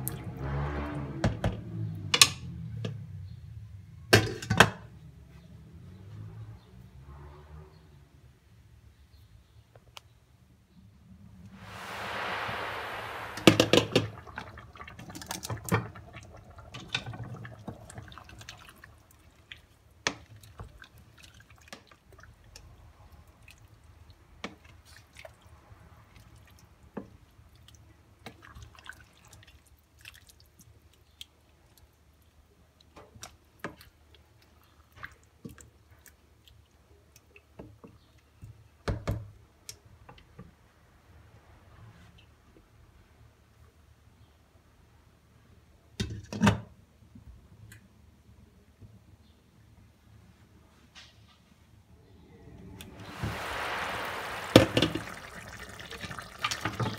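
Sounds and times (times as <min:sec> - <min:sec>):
soft pops and drips: 0:13.4 - 0:40.5, 0:52.8 - 0:56.9
stew simmering in a pot: 0:13.4 - 0:40.7, 0:52.8 - 0:56.9.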